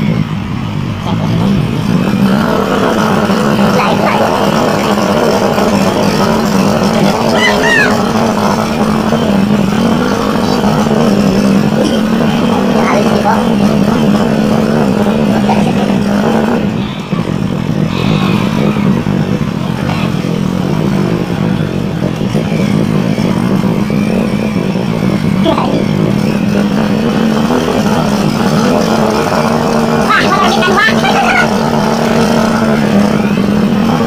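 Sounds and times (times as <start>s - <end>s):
small motorcycle engine running: 0.0s - 34.0s.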